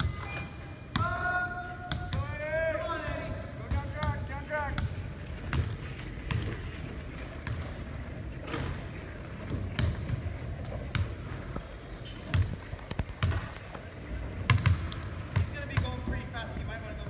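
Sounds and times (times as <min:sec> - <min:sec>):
basketballs bouncing on hardwood: 0:01.9 - 0:02.4, 0:03.0 - 0:06.6, 0:07.4 - 0:07.8, 0:09.5 - 0:11.2, 0:12.3 - 0:13.6, 0:14.5 - 0:16.3.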